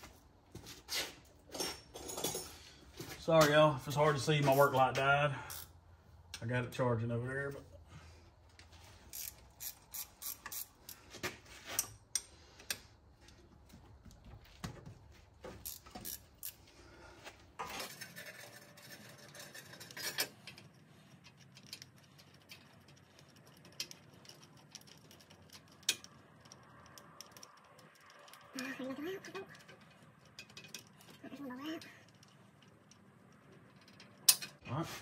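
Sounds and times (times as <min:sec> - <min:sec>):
hand wrench clicking: 0:09.1 - 0:10.8, 0:15.6 - 0:16.6, 0:20.0 - 0:28.5.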